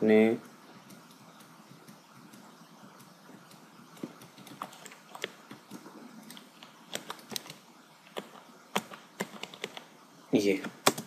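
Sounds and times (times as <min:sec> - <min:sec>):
faint steady hiss: 0:00.0 - 0:11.0
computer keys clicking: 0:00.4 - 0:09.9, 0:10.6 - 0:11.0.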